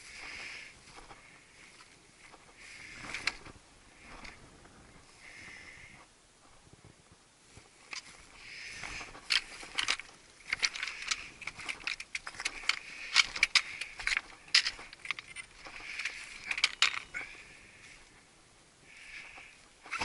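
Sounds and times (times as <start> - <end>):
stones clinking together: 9.2 - 17.3
soft hiss: 14.8 - 20.0.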